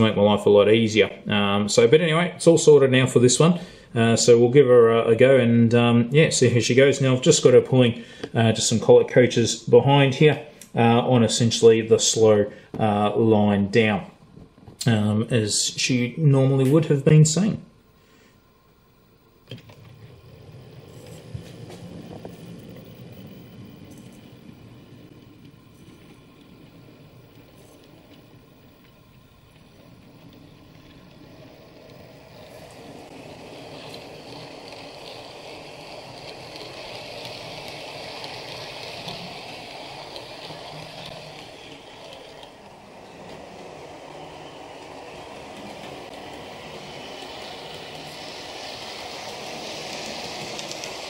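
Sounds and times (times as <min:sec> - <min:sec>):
model train motor whirr: 0:18.5 - 0:51.0
wheel rumble over track: 0:19.1 - 0:51.0.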